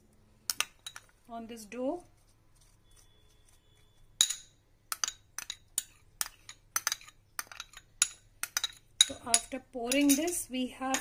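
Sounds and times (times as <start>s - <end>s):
metal spoon clinking ceramic bowl: 4.2s - 11.0s.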